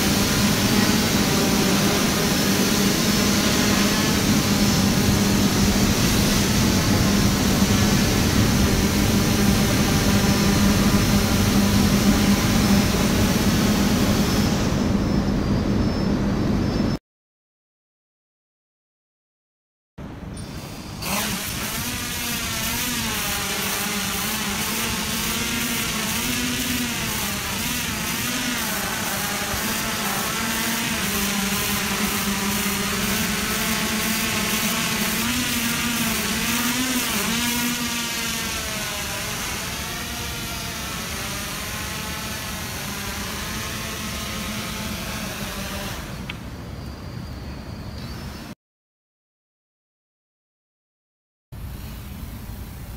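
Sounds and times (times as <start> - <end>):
drone propellers whirring: 0.0 - 17.0, 20.4 - 46.9.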